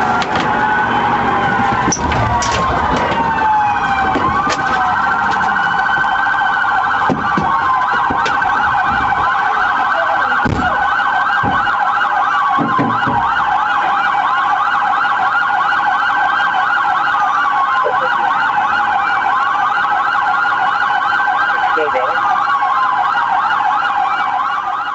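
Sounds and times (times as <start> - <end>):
police siren wail: 0.0 - 24.9
police siren yelp: 0.0 - 24.9
dull thumps: 7.0 - 9.4, 10.4 - 11.9, 12.5 - 13.4.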